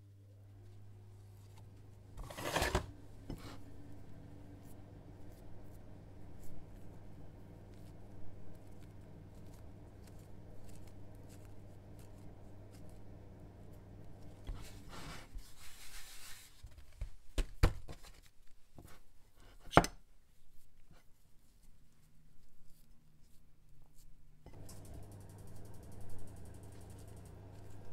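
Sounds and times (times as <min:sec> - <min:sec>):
low steady hum: 0:00.0 - 0:16.1, 0:20.6 - 0:27.9
rustling scrape: 0:02.2 - 0:03.7, 0:14.2 - 0:16.9.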